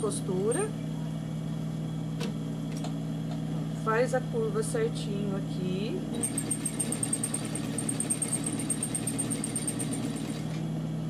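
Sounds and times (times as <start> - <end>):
sewing machine running: 6.2 - 10.6.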